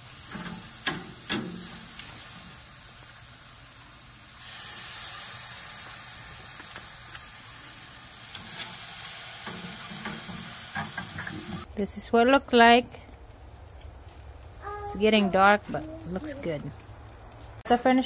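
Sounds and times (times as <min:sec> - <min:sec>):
meat sizzling on a grill: 0:00.0 - 0:17.6
metal tongs clicking on grill: 0:00.2 - 0:02.2, 0:09.4 - 0:11.6.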